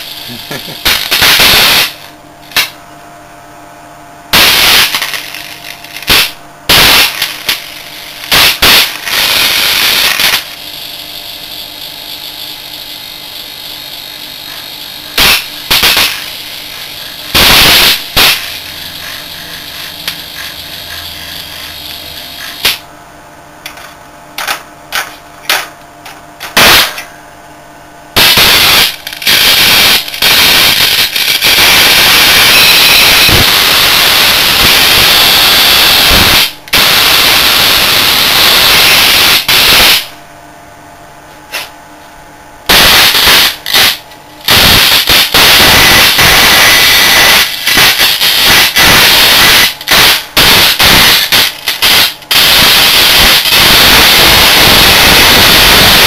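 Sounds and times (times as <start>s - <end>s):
electric arc crackling: 0.0s - 2.8s, 4.3s - 22.9s, 26.4s - 27.0s, 28.1s - 40.2s, 42.7s - 56.0s
transformer hum: 0.0s - 3.4s, 4.2s - 32.5s.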